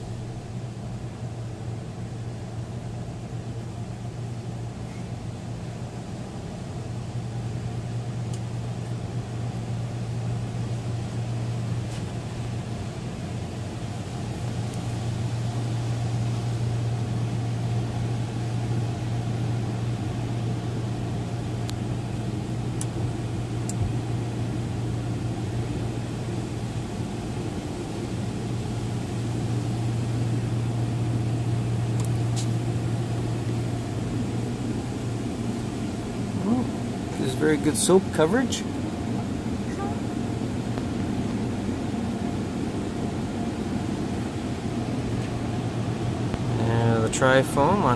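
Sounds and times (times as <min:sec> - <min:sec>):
steady low hum: 0:00.0 - 0:47.9
car wash spray: 0:22.4 - 0:38.8.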